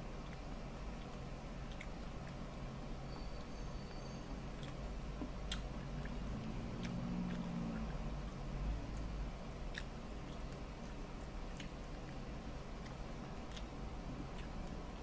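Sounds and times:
chewing meat: 0.0s - 15.0s
mouth clicks: 1.0s - 1.9s.

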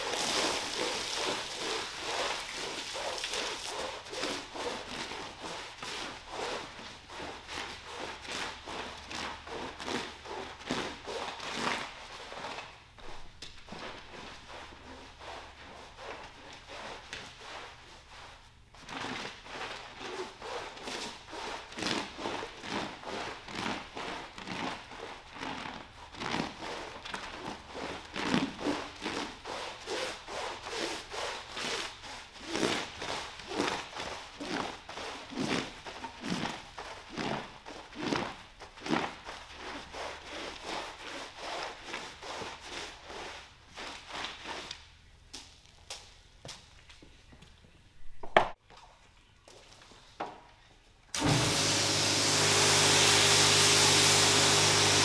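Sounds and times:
brush scrubbing wet rug: 0.0s - 44.8s, 51.2s - 55.0s.

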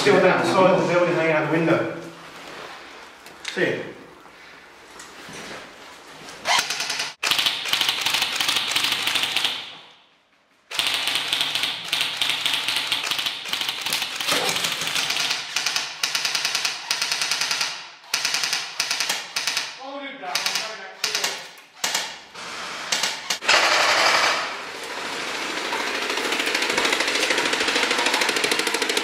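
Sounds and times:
airsoft rifle full-auto bursts: 6.5s - 9.7s, 10.7s - 19.8s, 22.9s - 24.6s.

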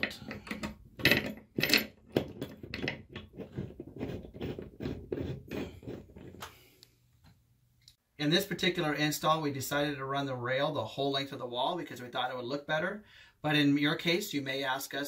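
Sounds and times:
metallic clinks and scrapes: 0.0s - 6.4s.

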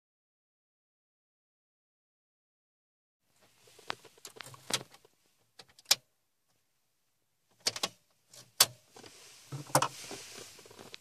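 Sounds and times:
soft rustle of handling: 3.3s - 5.5s, 8.9s - 11.0s.

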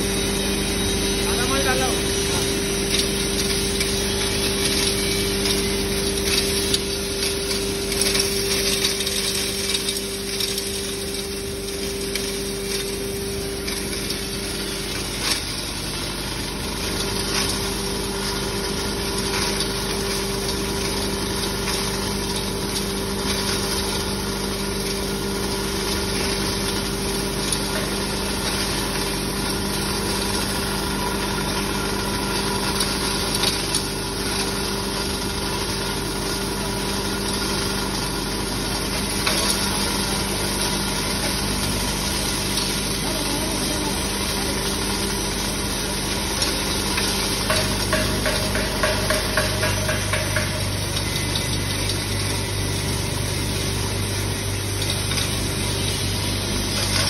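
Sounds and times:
grinding machine running: 0.0s - 57.0s.

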